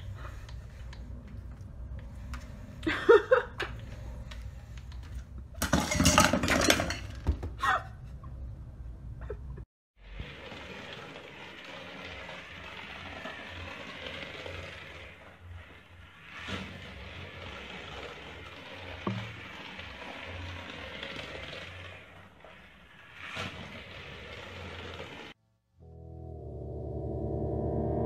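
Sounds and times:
food bowl clattering on floor: 5.6s - 7.5s.

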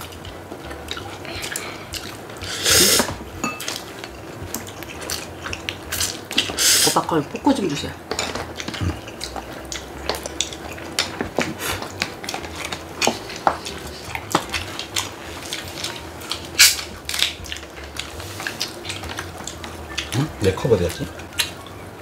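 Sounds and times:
chopsticks clinking against bowls: 2.9s - 6.7s.

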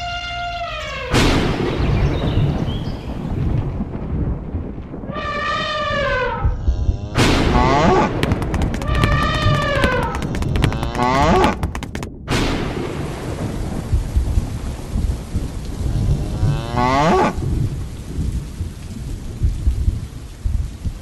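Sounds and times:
heavy rain: 0.0s - 21.0s
low thunder rumble: 0.8s - 21.0s
cow mooing: 15.9s - 17.4s.

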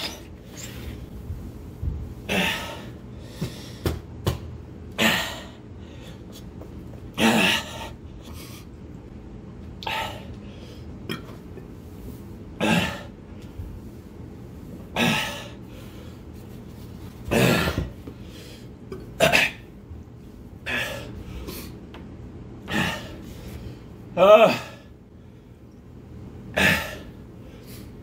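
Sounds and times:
man coughing and huffing: 7.2s - 7.9s, 17.3s - 18.0s, 18.9s - 19.7s, 26.5s - 27.1s.

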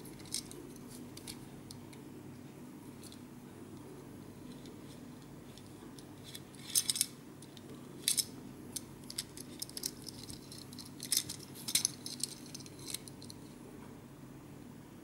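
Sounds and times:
steady low hum: 0.0s - 15.0s
plastic parts clicking and clattering: 6.3s - 13.4s.

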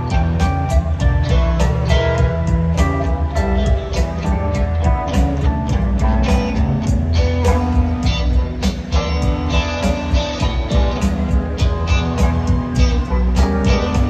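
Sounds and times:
bass: 0.0s - 14.0s
electric guitar: 0.0s - 14.0s
keyboards: 0.0s - 14.0s
steady drum beat: 0.0s - 14.0s.

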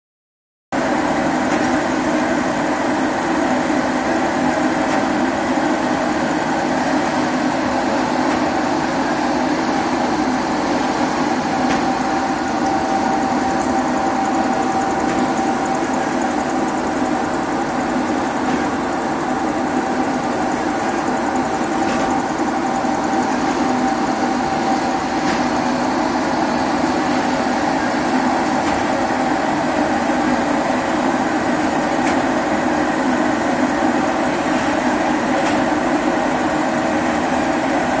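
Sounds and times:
machine drone with whine: 0.8s - 38.0s.

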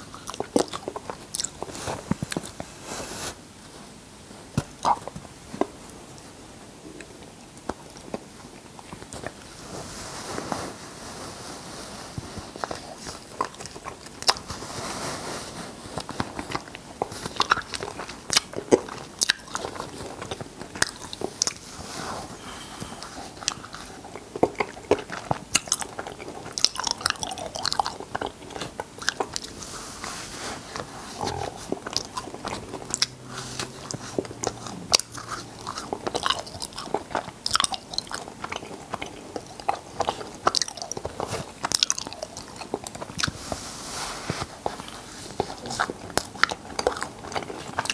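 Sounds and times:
wet mouth chewing clicks: 0.0s - 2.6s, 16.3s - 21.6s, 23.0s - 29.6s, 30.7s - 43.4s.

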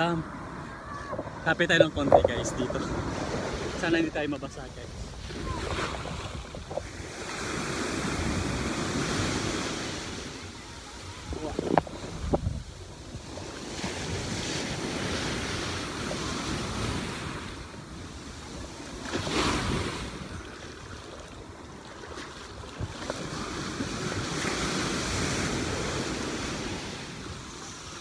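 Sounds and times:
ocean surf washing: 0.0s - 28.0s
wind buffeting microphone: 0.5s - 17.4s.

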